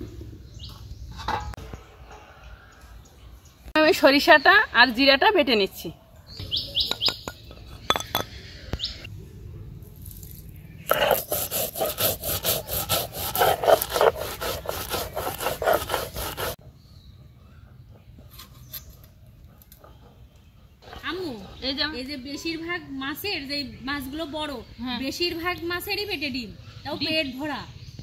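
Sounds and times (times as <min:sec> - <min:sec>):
stone roller grinding on stone: 0:10.9 - 0:16.6.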